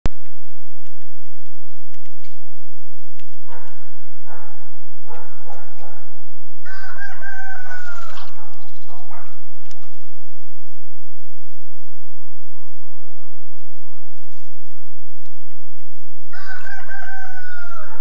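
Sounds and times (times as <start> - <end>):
rooster crowing: 6.6 - 8.5, 16.3 - 18.0.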